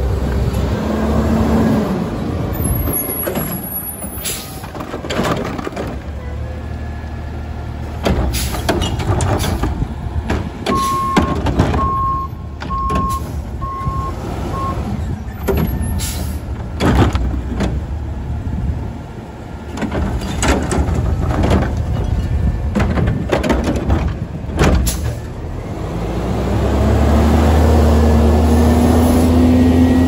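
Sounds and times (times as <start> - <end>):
metal clanks and bangs: 2.8 - 6.1, 8.0 - 12.0, 19.7 - 25.3
backup alarm beeping: 10.7 - 14.8
garbage truck engine revving: 19.6 - 30.0.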